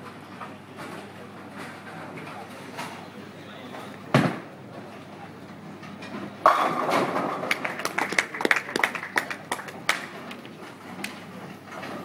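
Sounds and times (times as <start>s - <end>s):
bowling pins crashing and clattering: 6.4s - 7.7s
bowling ball rolling: 6.4s - 9.2s.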